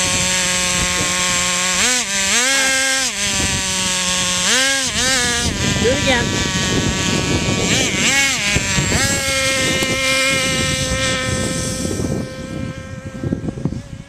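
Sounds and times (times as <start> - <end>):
rc car motor revving: 0.0 - 14.0.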